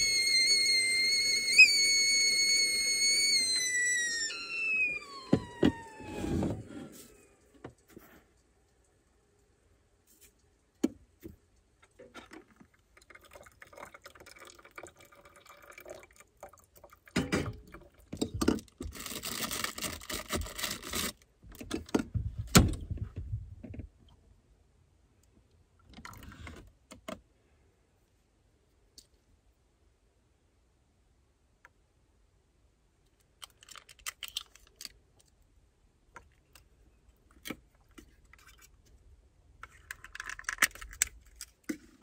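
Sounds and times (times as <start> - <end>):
water pouring into filter: 12.5 - 18.1.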